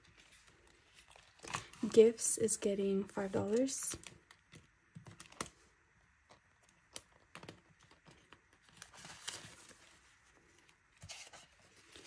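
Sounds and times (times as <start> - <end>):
plastic binder pocket crinkling: 0.0 - 2.0, 6.3 - 12.0.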